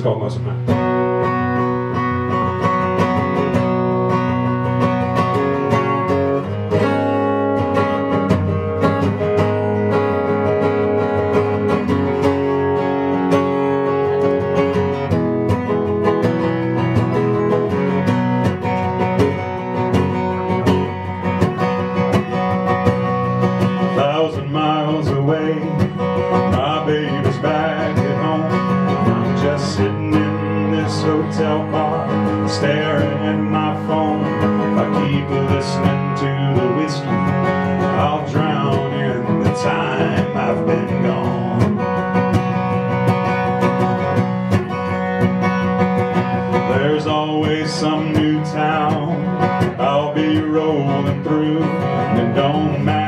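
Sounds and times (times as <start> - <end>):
acoustic guitar strumming: 0.0 - 53.0
man singing: 23.8 - 42.1, 46.5 - 53.0.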